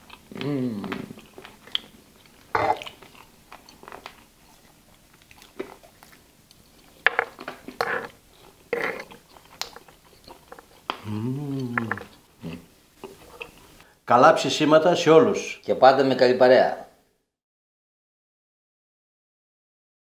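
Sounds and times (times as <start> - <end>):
people chewing: 0.0 - 13.9.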